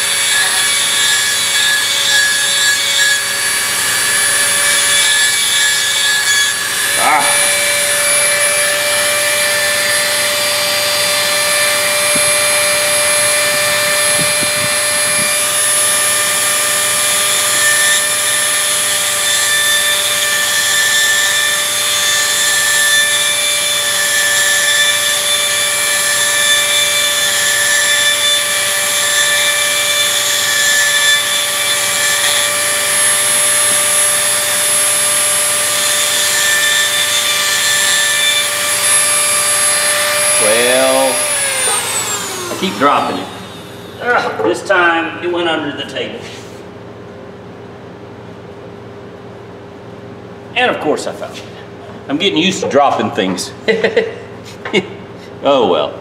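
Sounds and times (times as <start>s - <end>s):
rotary tool grinding steel: 0.0s - 44.5s.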